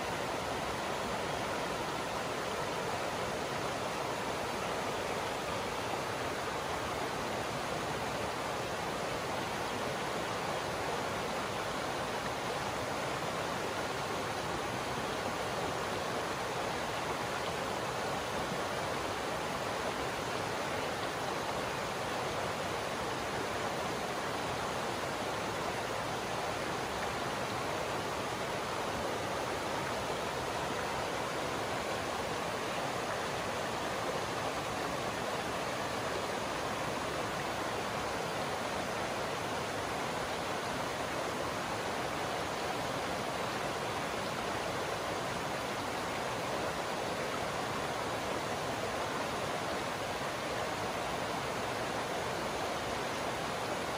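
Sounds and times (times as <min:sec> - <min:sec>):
stream rushing over stones: 0:00.0 - 0:53.9.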